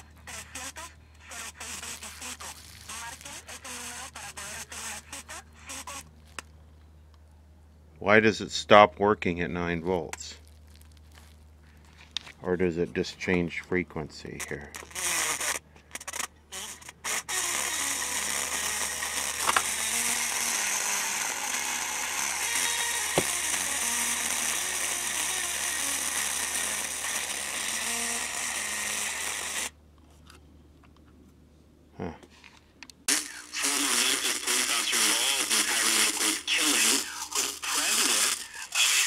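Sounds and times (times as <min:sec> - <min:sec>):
radio speaker hiss and crackle: 0:33.1 - 0:39.0.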